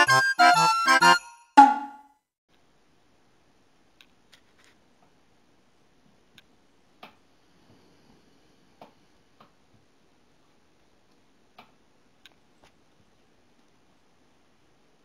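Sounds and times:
faint irregular ticks and taps: 6.3s - 7.8s, 8.8s - 9.9s, 11.0s - 13.8s.

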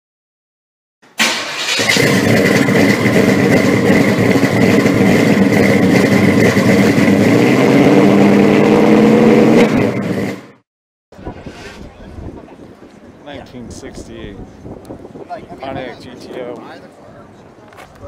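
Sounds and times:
car engine running: 1.7s - 10.6s.

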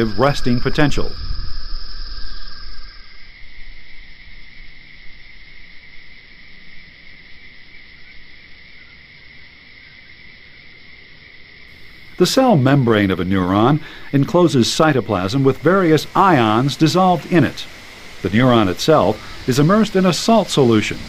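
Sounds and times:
low rumble: 0.0s - 4.1s
soft hiss: 11.2s - 21.0s.

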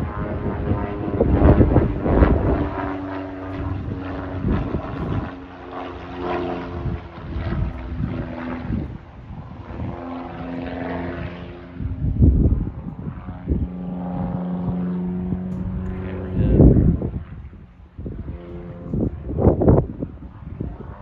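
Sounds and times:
propeller plane engine droning: 0.0s - 21.0s
loud low rumbles: 12.0s - 17.2s.

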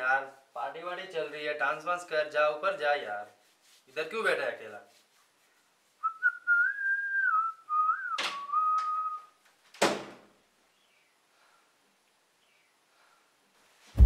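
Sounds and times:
person whistling a tune: 6.0s - 9.3s.

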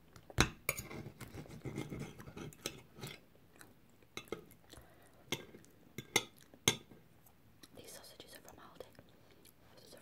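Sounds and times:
knife and fork scraping plate: 0.7s - 3.2s.

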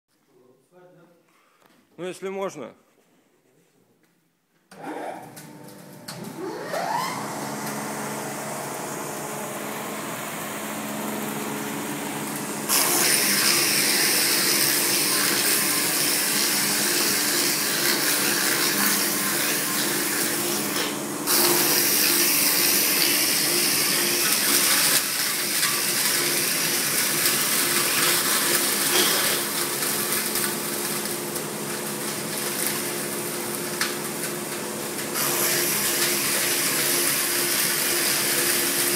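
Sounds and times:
machine motor whining and humming: 4.8s - 28.8s.

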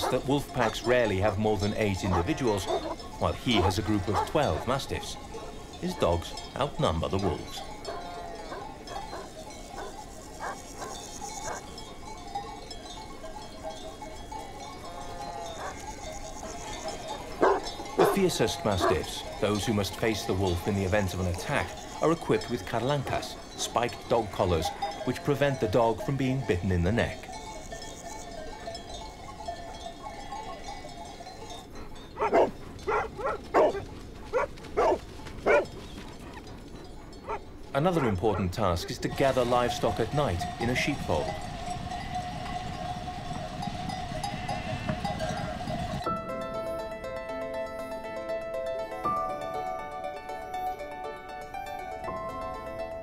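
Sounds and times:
dog barking loudly: 0.0s - 0.8s, 2.1s - 4.7s, 17.4s - 18.2s, 32.2s - 35.7s
dogs barking: 0.0s - 12.6s, 14.7s - 25.2s, 28.5s - 42.8s
sheep bleating: 14.9s - 19.1s, 39.2s - 45.6s.

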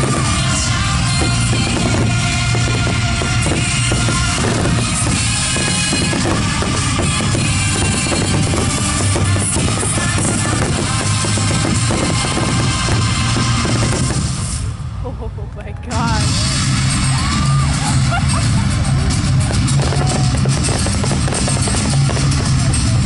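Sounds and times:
fireworks bursting: 0.0s - 15.0s, 15.9s - 23.0s
music playing: 0.0s - 23.0s.

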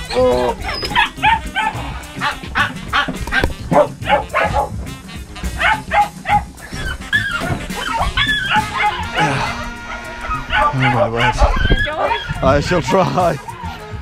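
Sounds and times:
background music: 0.0s - 14.0s
dogs barking and yipping: 0.0s - 14.0s.

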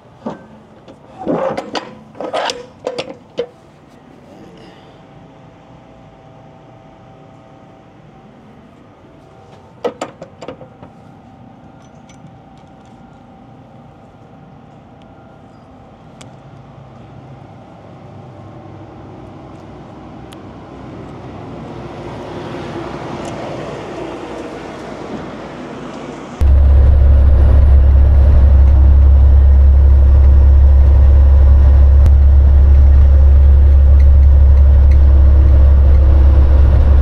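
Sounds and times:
rushing vehicle noise: 20.7s - 37.0s
engine hum: 26.0s - 37.0s.

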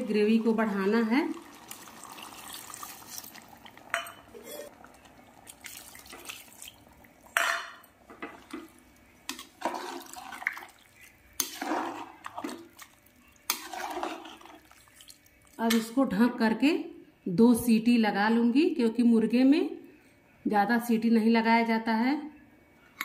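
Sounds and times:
water pouring into metal pot: 0.0s - 7.4s, 8.1s - 15.6s
spoon clinking against pot: 3.9s - 4.8s.

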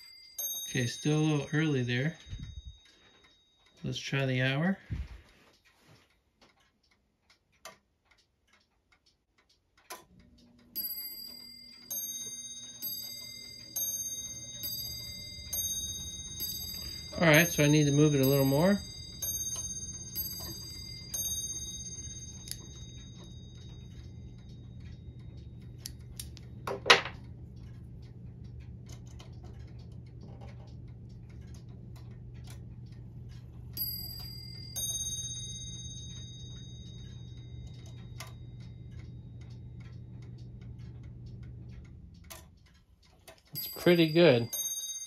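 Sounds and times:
clock ticking and clicking: 0.0s - 45.0s
high ringing notes: 10.7s - 25.2s, 33.8s - 38.8s, 43.6s - 45.0s.

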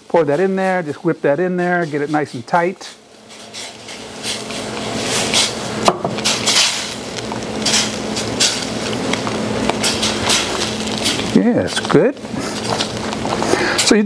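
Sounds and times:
spatula scraping saucepan: 0.2s - 5.6s.

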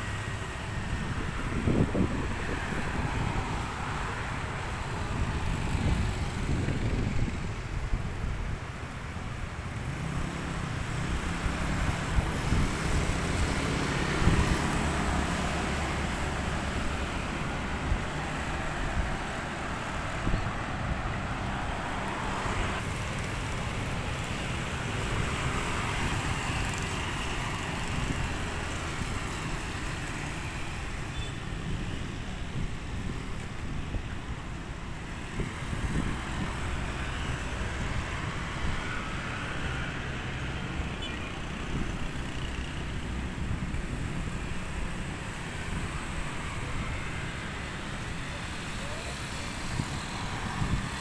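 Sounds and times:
cars and motorcycles passing: 0.0s - 51.0s.

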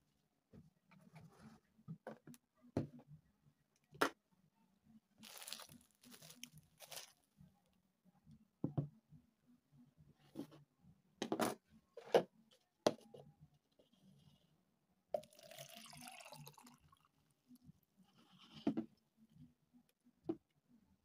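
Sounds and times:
water pouring into plastic cup: 15.2s - 17.2s.

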